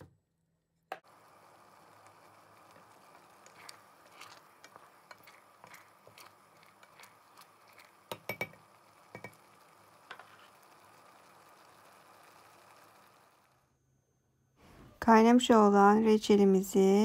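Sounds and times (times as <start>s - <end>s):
wooden spoon stirring in pot: 1.1s - 12.8s
spoon knocking on metal pot: 8.1s - 9.4s.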